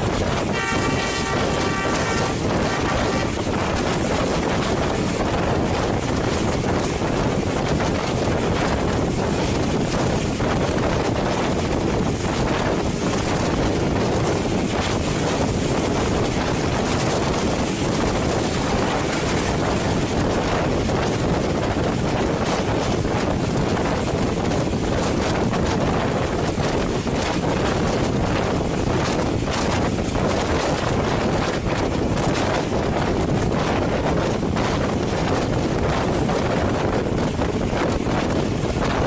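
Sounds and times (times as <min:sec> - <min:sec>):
passenger train rolling along track: 0:00.0 - 0:39.0
wind on microphone: 0:00.0 - 0:39.0.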